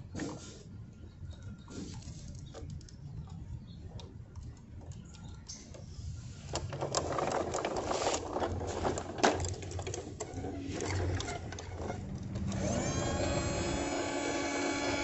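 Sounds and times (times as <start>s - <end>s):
steady whirring tone: 10.9s - 15.0s.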